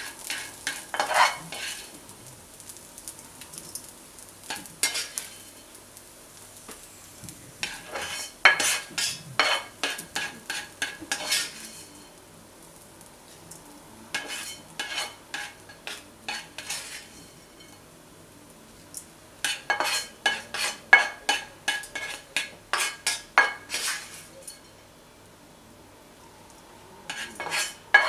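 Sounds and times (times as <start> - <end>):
utensil scraping pan: 0.0 - 2.0, 4.4 - 5.6, 7.6 - 12.2, 14.1 - 17.8, 19.4 - 24.7, 27.1 - 28.0.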